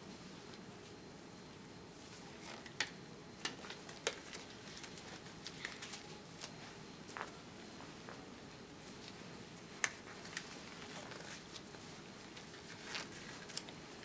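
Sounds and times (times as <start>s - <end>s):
faint room hiss: 0.0s - 14.0s
gloves crackling and snapping: 2.3s - 7.4s, 9.0s - 14.0s.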